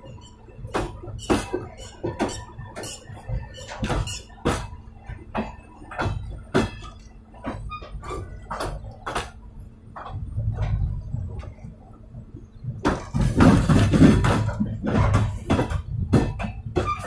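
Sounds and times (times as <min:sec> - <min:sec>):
metallic squeaks and clicks: 0:00.0 - 0:04.8, 0:05.4 - 0:10.2, 0:12.5 - 0:17.0
train wheel rumbling on rail: 0:00.0 - 0:17.0.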